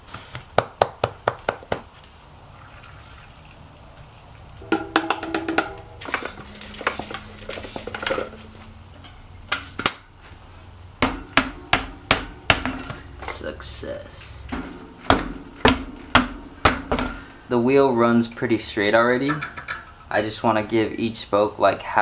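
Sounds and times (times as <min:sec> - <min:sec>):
background music: 0:04.6 - 0:09.5.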